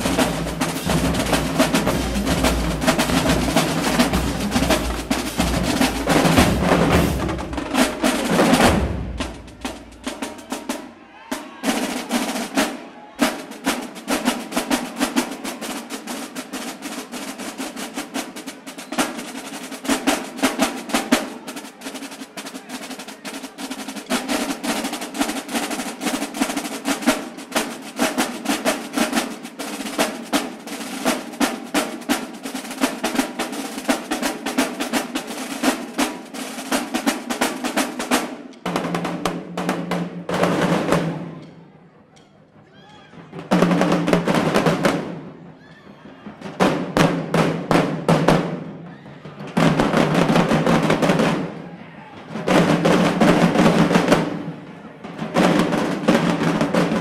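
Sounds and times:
bass drums: 0.0s - 10.1s
snare drum rolls: 0.0s - 41.8s, 42.4s - 57.0s.

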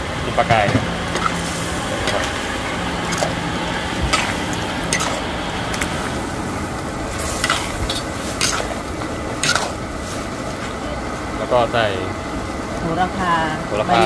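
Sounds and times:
utensil clinking against pot: 0.5s - 3.4s, 4.0s - 6.1s, 7.3s - 9.8s.

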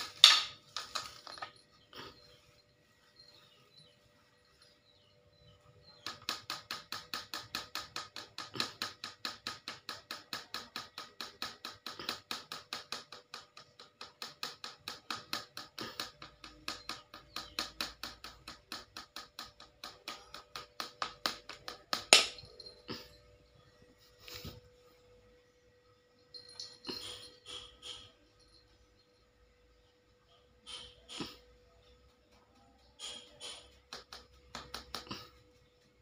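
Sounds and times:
broom sweeping tiled floor: 0.0s - 4.9s, 23.9s - 25.1s.

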